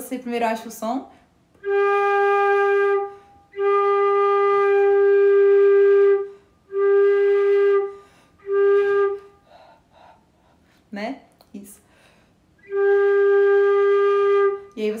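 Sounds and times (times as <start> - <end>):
flute playing held notes: 1.6 - 9.6, 12.6 - 15.0.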